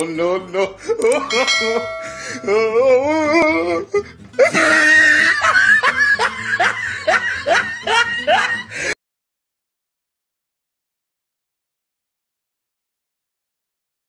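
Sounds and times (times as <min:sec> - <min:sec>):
hearty laughter: 0:00.5 - 0:02.8, 0:03.6 - 0:09.0.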